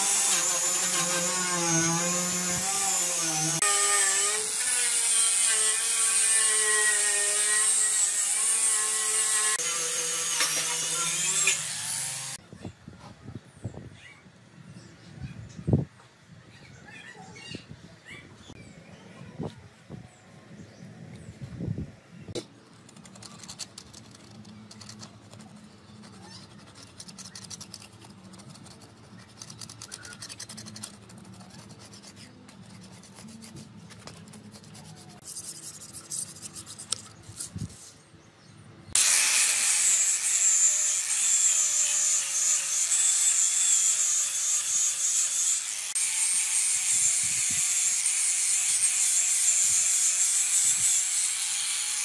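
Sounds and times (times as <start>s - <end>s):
angle grinder whining: 0.0s - 12.4s
hand scraper rasping metal: 0.0s - 12.4s, 23.3s - 37.1s.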